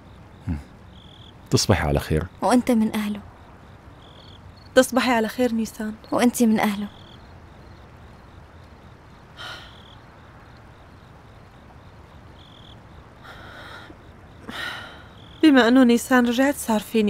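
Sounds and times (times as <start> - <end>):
crickets chirping: 0.0 - 17.0
breathy exhalations: 9.4 - 9.8, 13.2 - 15.2.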